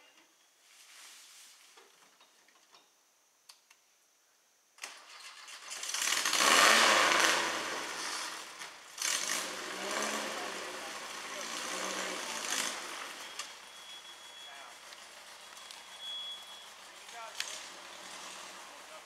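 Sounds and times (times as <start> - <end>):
engine starting and revving: 4.8 - 14.1, 14.8 - 19.0.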